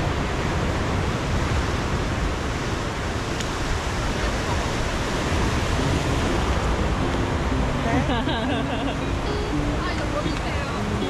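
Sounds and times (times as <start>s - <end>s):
low rumble of surf: 0.0s - 11.0s
sea waves rushing: 0.0s - 11.0s.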